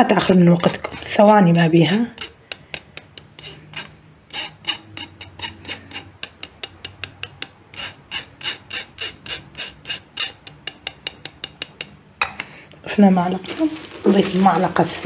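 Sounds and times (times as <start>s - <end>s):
spoon scraping through mesh sieve: 0.0s - 12.0s.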